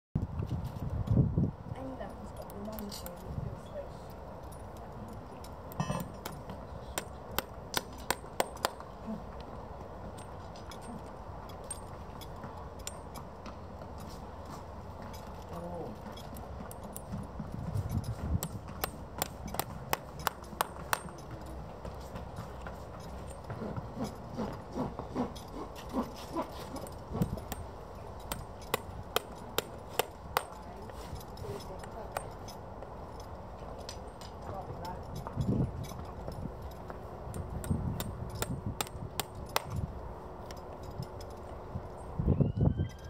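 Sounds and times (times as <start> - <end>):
hammer tapping horseshoe nails: 5.7 - 8.9, 16.1 - 24.6, 25.2 - 32.6, 35.1 - 39.9
short falling squeaks: 42.2 - 43.0.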